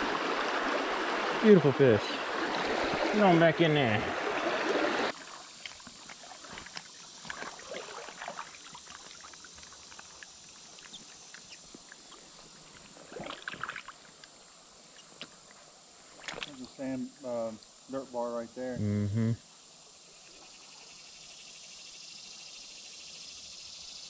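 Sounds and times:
river murmur: 0:00.0 - 0:09.2
water splashing: 0:00.0 - 0:14.3, 0:16.1 - 0:16.9.

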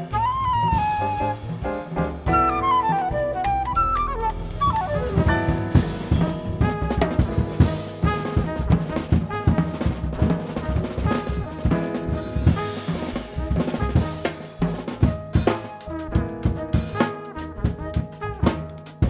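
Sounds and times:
drum kit: 0:00.0 - 0:19.0
jazz group playing: 0:00.0 - 0:19.0
trumpet line: 0:02.3 - 0:14.6, 0:15.9 - 0:18.7.

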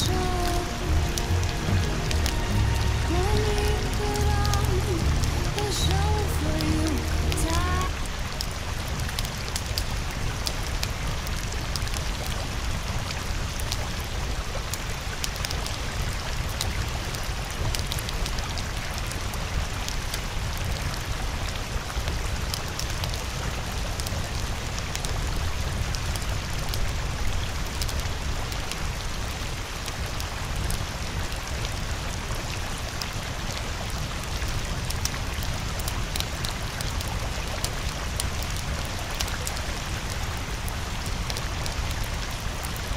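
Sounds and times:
low rumble: 0:00.0 - 0:09.2
raindrop ticks: 0:00.0 - 0:42.9
steady rain hiss: 0:00.0 - 0:42.9.

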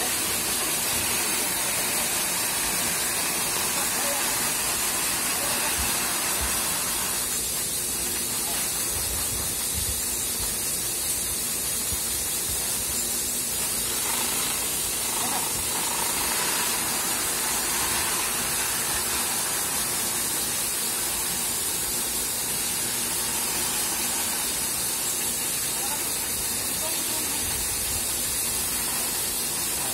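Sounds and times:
grain pouring into a sack: 0:13.6 - 0:29.9.

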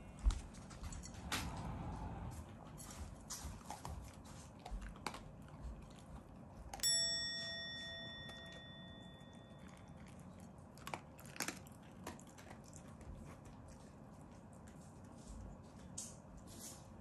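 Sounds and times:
dog crunching food: 0:02.7 - 0:07.0, 0:08.3 - 0:16.5
metallic ding: 0:06.8 - 0:09.6.

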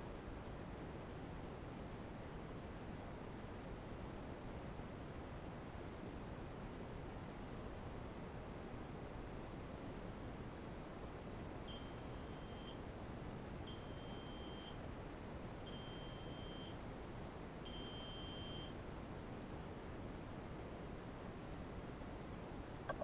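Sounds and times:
high-pitched buzzer beeps: 0:11.7 - 0:12.8, 0:13.7 - 0:14.8, 0:15.7 - 0:16.8, 0:17.7 - 0:18.7.

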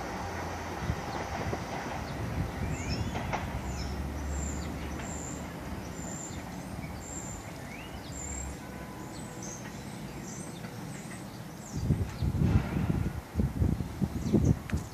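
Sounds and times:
subway train rumble: 0:00.0 - 0:14.9
small birds chirping: 0:00.8 - 0:12.5.

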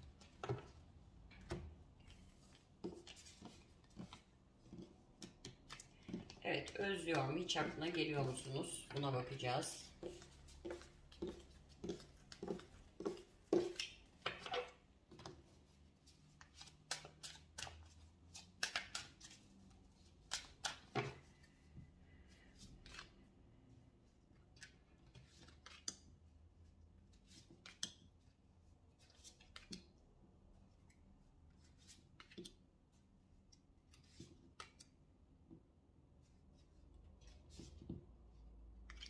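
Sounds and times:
cards shuffled and dealt: 0:00.1 - 0:21.7, 0:22.4 - 0:23.3, 0:24.5 - 0:26.1, 0:27.1 - 0:28.1, 0:29.0 - 0:30.0, 0:31.6 - 0:32.6, 0:33.4 - 0:35.1.

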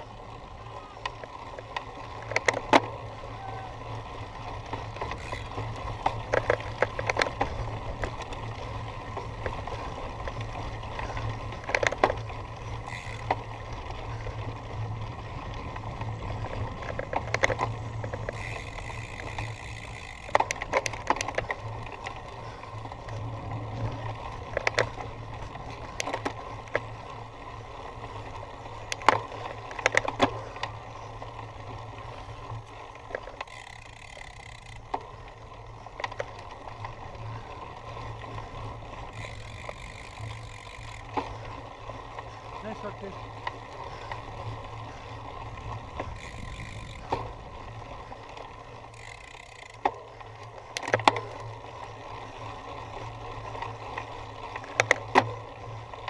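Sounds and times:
bike rattling over rough ground: 0:00.0 - 0:56.0.

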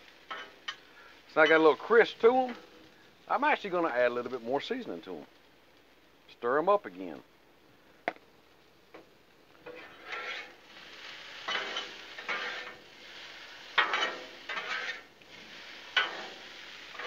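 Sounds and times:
potatoes sizzling: 0:00.0 - 0:17.0
spatulas scraping steel griddle: 0:00.2 - 0:03.0, 0:09.6 - 0:17.0.

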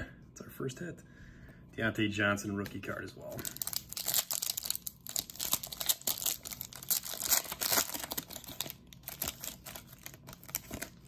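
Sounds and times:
foil wrapper crinkling and tearing: 0:03.3 - 0:11.0.

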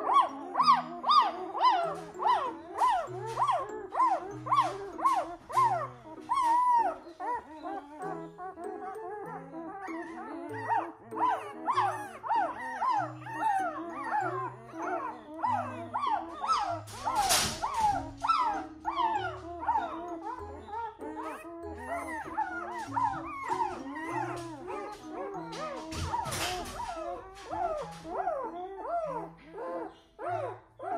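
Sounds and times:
background music: 0:00.0 - 0:30.9
puppies squealing and whimpering: 0:00.0 - 0:30.9.

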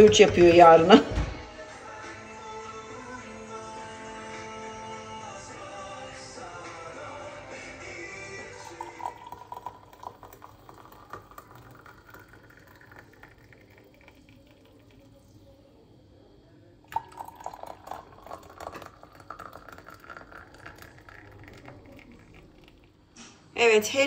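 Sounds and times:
hot water pouring into glass: 0:07.8 - 0:15.6, 0:16.9 - 0:23.1.

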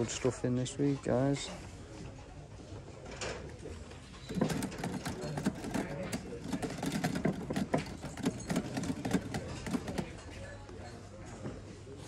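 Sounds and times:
light clicks and knocks: 0:04.2 - 0:10.3.

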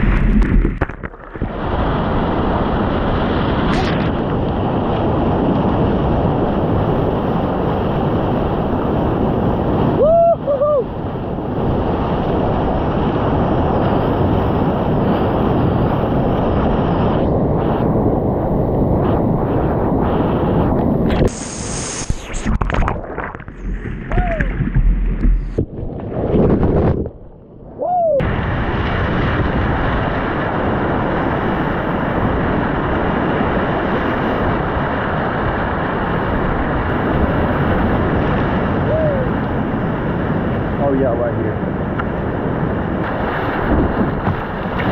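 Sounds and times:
water splashing over kayak: 0:00.0 - 0:09.9, 0:21.1 - 0:27.3, 0:42.2 - 0:44.9
wind buffeting microphone: 0:00.0 - 0:44.9.

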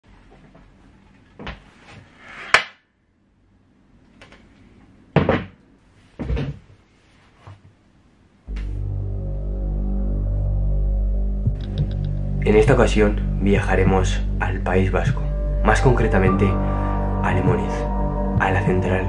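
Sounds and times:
folding chair knocks and scrapes: 0:06.2 - 0:06.7
low droning hum: 0:08.4 - 0:19.0.

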